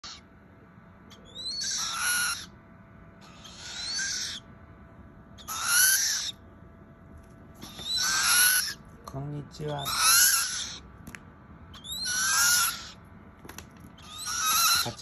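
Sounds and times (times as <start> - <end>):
owl chicks raspy hissing calls: 1.2 - 2.6, 3.2 - 4.5, 5.4 - 6.4, 7.6 - 8.8, 9.7 - 10.9, 11.8 - 13.0, 14.0 - 15.0.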